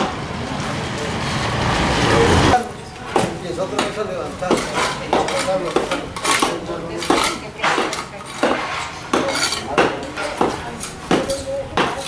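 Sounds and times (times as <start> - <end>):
metal tools clinking on asphalt: 3.1 - 12.0
shovel scraping asphalt: 3.7 - 12.0.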